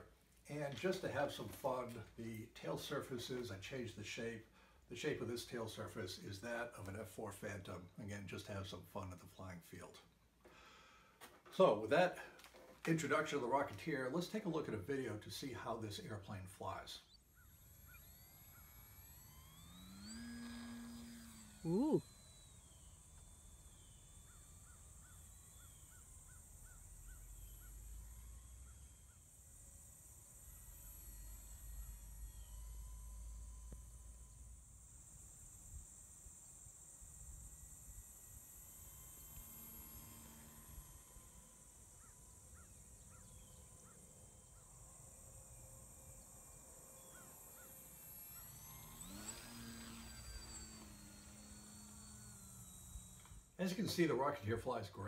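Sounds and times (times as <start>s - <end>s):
model plane electric motor whine: 10.5s - 55.0s
bird calling faintly: 21.4s - 29.2s, 41.9s - 44.8s, 46.9s - 50.9s.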